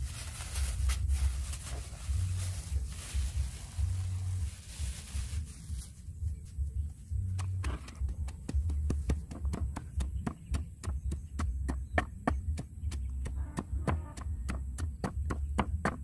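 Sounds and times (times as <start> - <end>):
low rumble: 0.0 - 10.2
wooden pestle pounding stone mortar: 7.4 - 16.0.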